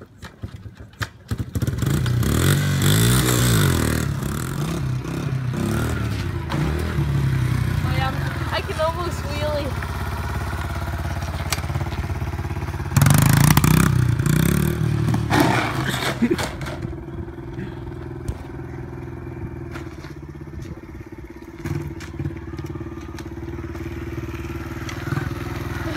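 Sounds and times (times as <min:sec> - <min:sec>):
small motorcycle engine idling: 0:01.3 - 0:15.2, 0:16.0 - 0:25.9
loud rough engine burst: 0:13.0 - 0:17.9.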